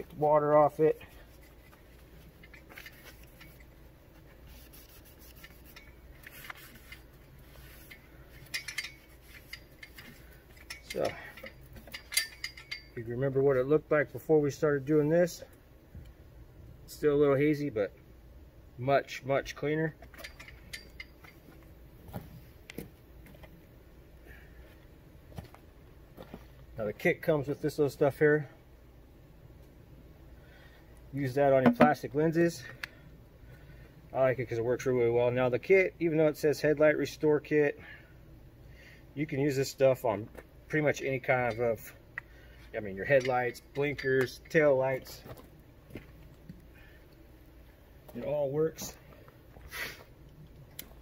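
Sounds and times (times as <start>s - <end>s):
low steady background noise: 0.0s - 51.0s
paper towel rubbing a lens: 4.4s - 6.9s.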